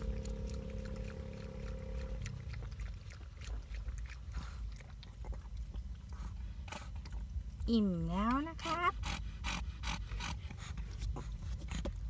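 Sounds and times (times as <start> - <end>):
dog lapping water: 0.0 - 7.6.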